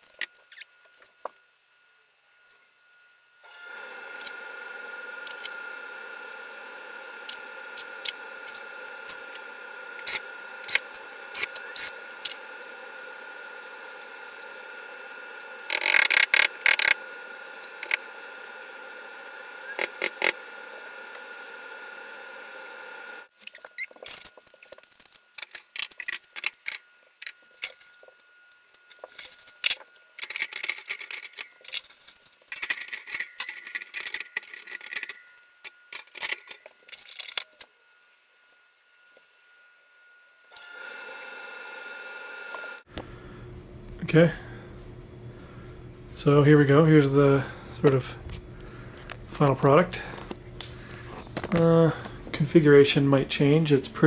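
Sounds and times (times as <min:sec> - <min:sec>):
steady hum with high whine: 0:00.0 - 0:54.0.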